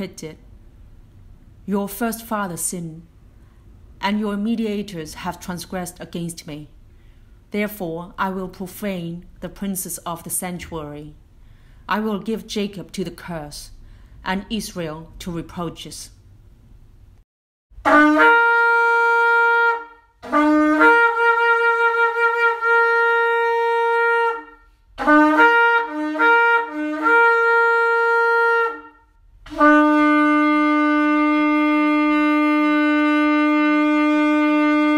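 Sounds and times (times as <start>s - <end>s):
shofar blasts: 17.8s - 34.9s.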